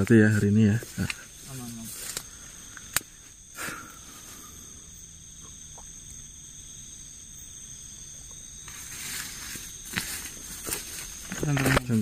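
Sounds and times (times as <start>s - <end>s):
night insects droning: 0.0s - 12.0s
faint ticks: 2.0s - 3.2s.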